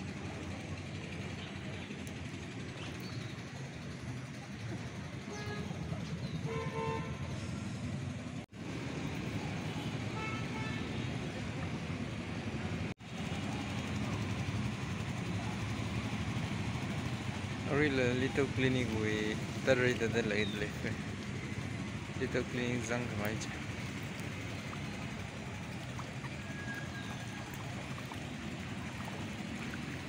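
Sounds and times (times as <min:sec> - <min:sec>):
low traffic engine rumble: 0:00.0 - 0:30.0
car horn honking: 0:06.4 - 0:07.2, 0:10.2 - 0:10.9.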